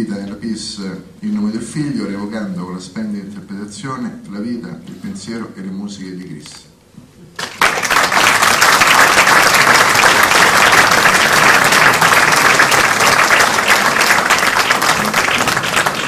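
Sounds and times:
audience applause: 0:07.4 - 0:16.0.

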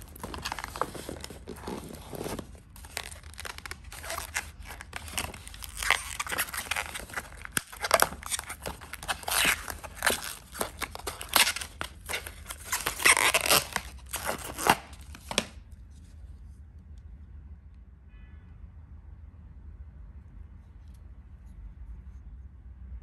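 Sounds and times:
plastic film peeling and crinkling: 0:00.0 - 0:16.0.

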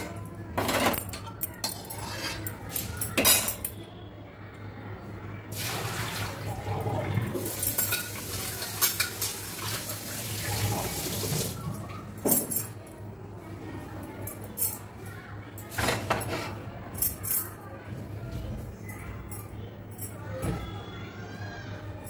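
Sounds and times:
tap water running into sink: 0:05.6 - 0:11.8.

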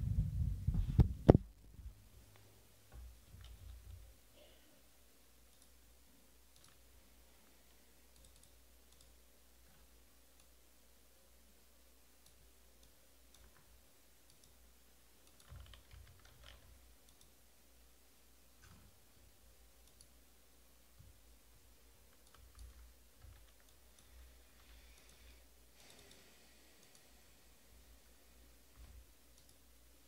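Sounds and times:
computer keyboard and mouse clicks: 0:03.3 - 0:04.0, 0:05.5 - 0:05.8, 0:06.5 - 0:06.9, 0:08.1 - 0:10.6, 0:12.2 - 0:14.6, 0:15.2 - 0:17.4, 0:19.8 - 0:20.2, 0:22.1 - 0:27.1, 0:28.8 - 0:29.6.

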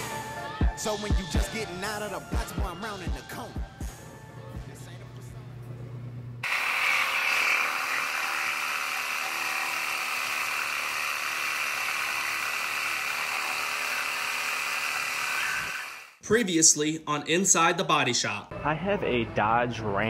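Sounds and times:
cordless power tool running: 0:06.4 - 0:16.2.

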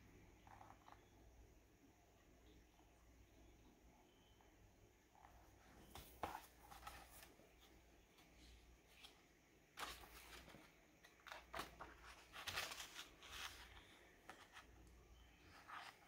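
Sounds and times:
book pages rustling: 0:05.3 - 0:16.0.

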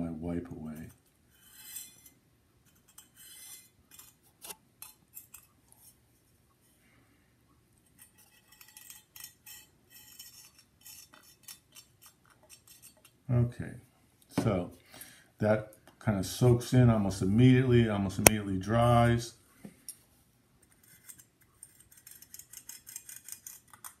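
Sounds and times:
plastic tip scratching ceramic: 0:20.6 - 0:24.0.

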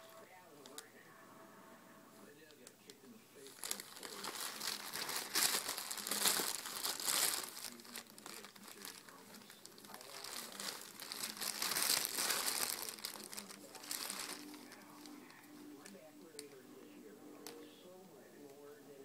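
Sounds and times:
plastic bag crinkling: 0:03.4 - 0:16.6.

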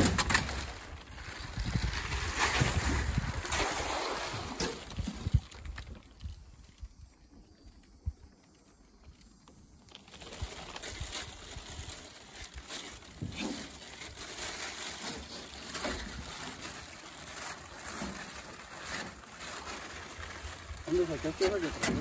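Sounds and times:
water splashing and dripping: 0:02.5 - 0:06.2.

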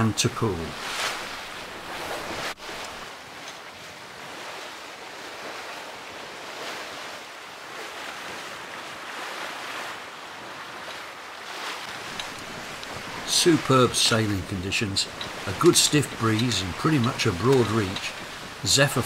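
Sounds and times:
wind and sea rushing: 0:00.0 - 0:19.0
wind buffeting microphone: 0:11.9 - 0:19.0.

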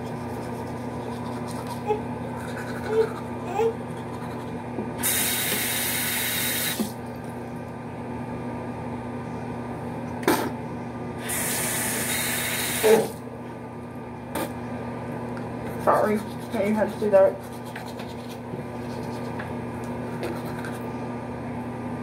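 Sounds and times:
sink tap running: 0:05.0 - 0:07.0, 0:11.2 - 0:13.2.

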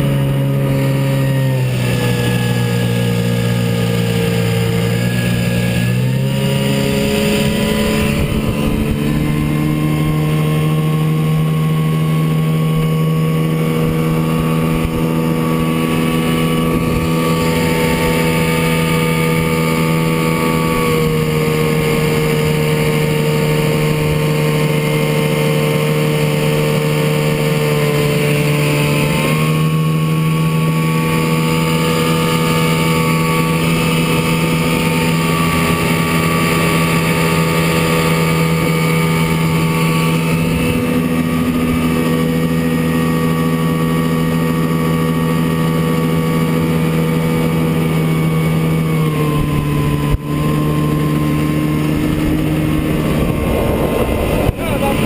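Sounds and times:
two-stroke outboard motor running: 0:00.0 - 0:55.0.

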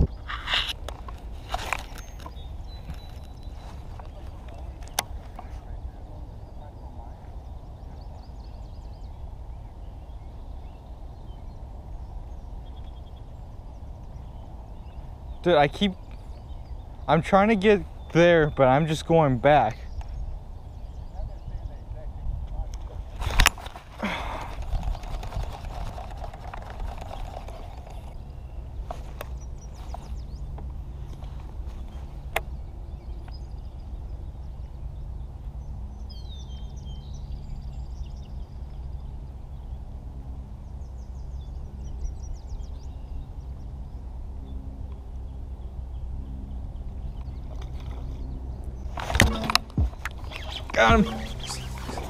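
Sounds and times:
small birds chirping: 0:00.0 - 0:52.0
wind rumbling on microphone: 0:00.0 - 0:52.0
high pips: 0:49.2 - 0:52.0.

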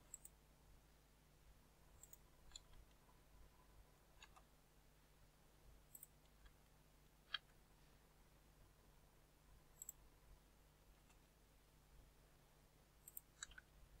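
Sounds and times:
computer mouse and keyboard clicks: 0:04.2 - 0:04.5, 0:13.0 - 0:13.7.

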